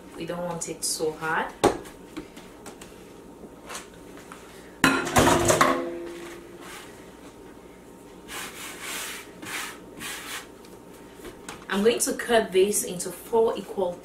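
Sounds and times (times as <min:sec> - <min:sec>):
soft brushing: 0:06.2 - 0:07.4, 0:08.0 - 0:11.2.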